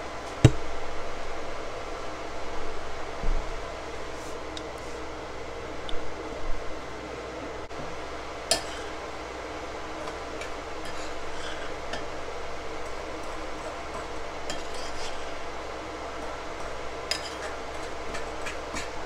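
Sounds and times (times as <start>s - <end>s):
steady background hum: 0.0s - 19.0s
spoon stirring thick mixture: 9.9s - 19.0s.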